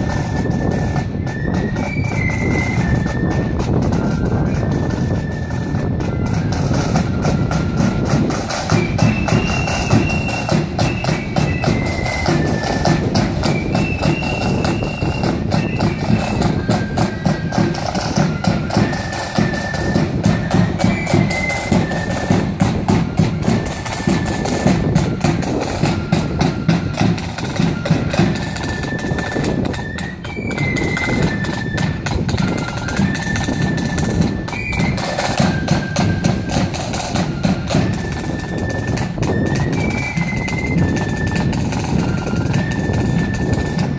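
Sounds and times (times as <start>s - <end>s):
flute melody: 0.0s - 43.9s
snare drums: 0.0s - 43.9s.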